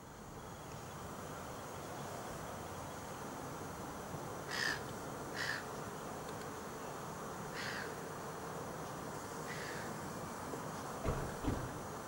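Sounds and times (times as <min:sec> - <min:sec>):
background hiss: 0:00.0 - 0:12.0
bird calls: 0:04.5 - 0:05.7, 0:07.6 - 0:08.0, 0:09.5 - 0:09.9.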